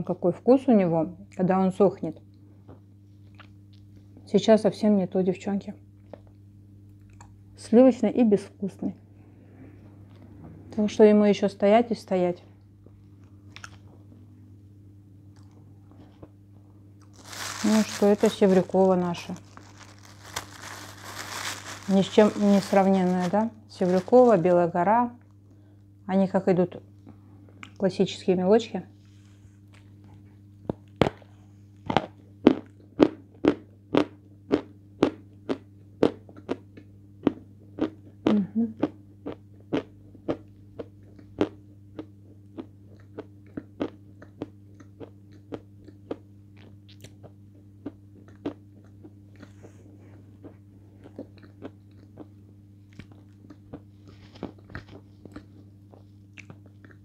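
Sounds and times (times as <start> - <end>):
low hum: 5.8 - 32.9
chalk crunching while chewed: 13.1 - 14.0, 29.7 - 57.0.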